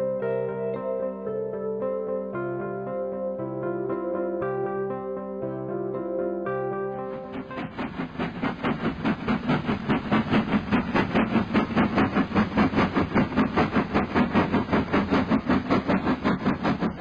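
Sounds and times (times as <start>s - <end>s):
model train running: 7.0s - 17.0s.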